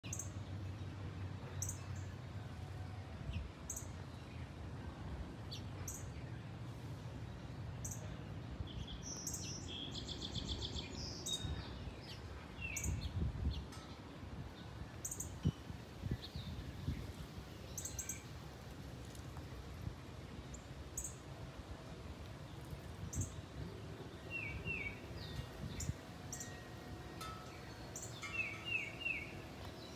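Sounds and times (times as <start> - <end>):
bird chirping: 1.4 - 2.1, 7.8 - 14.0, 14.6 - 18.4, 22.5 - 29.9.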